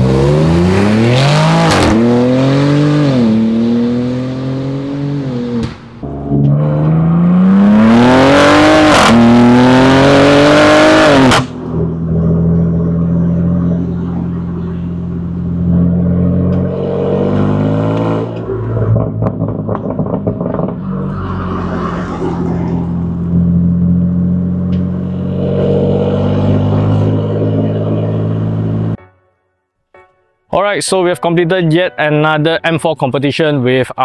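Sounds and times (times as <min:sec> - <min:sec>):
car engine accelerating hard: 0:00.0 - 0:29.0
exhaust crackles: 0:11.3 - 0:25.1.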